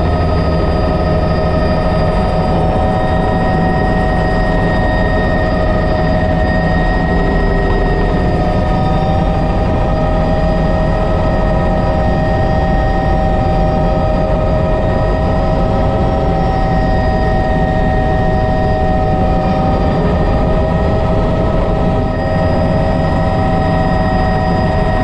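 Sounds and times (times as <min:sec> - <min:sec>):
helicopter turbine whine: 0:00.0 - 0:25.0
rotor rumble: 0:00.0 - 0:25.0.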